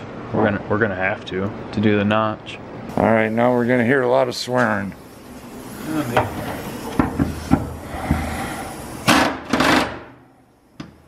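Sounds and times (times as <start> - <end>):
pneumatic impact wrench hammering: 5.6 - 10.2.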